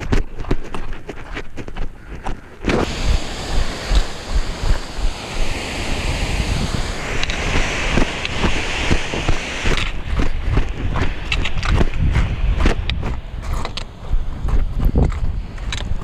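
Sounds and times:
footsteps on rock: 0:00.0 - 0:02.9, 0:07.5 - 0:16.0
waterfall rushing: 0:02.8 - 0:11.7.

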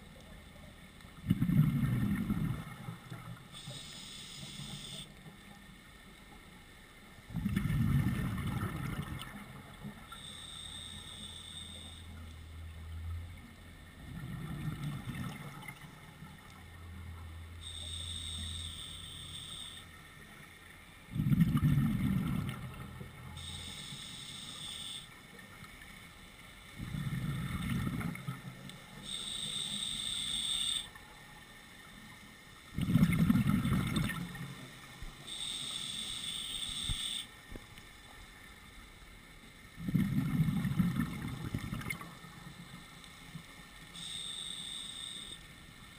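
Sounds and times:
exhaled bubbles rushing: 0:01.2 - 0:03.3, 0:07.3 - 0:09.6, 0:14.0 - 0:15.8, 0:21.1 - 0:23.0, 0:26.8 - 0:28.5, 0:32.7 - 0:34.5, 0:39.8 - 0:42.2
hissing inhale through regulator: 0:03.6 - 0:05.1, 0:10.1 - 0:12.2, 0:17.6 - 0:19.8, 0:23.4 - 0:25.1, 0:29.0 - 0:30.9, 0:35.2 - 0:37.3, 0:44.0 - 0:45.4.

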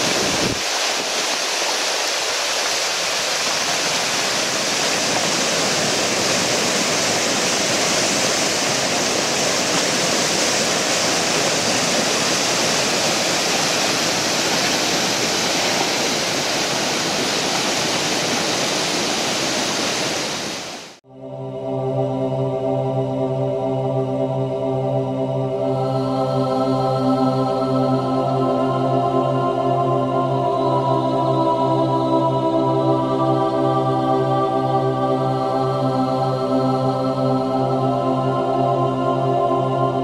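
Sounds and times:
river water rushing: 0:00.0 - 0:21.0.

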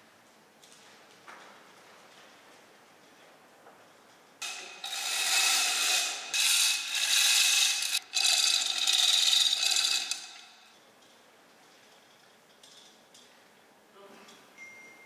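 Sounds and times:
chain hoist ratcheting: 0:04.4 - 0:10.7.

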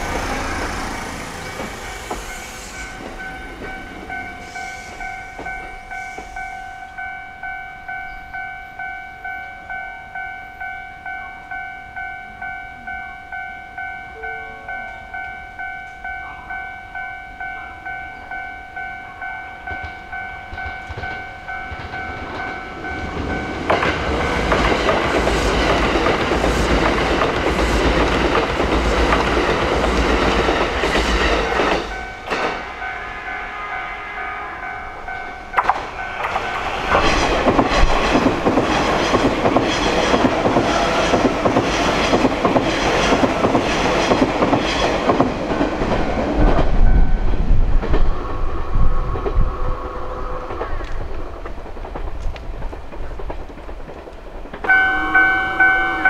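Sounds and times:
electric train rumbling past: 0:00.0 - 0:56.0
level crossing bell ringing: 0:02.4 - 0:23.7, 0:54.7 - 0:56.0.

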